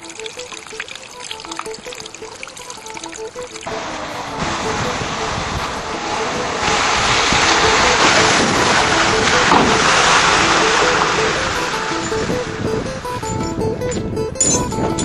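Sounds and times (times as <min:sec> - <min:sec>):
loud steady rushing noise: 0:03.0 - 0:14.4.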